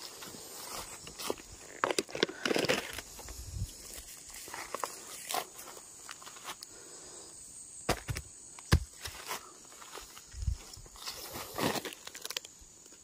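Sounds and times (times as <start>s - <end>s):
footsteps crunching through dry leaves: 8.7s - 12.3s.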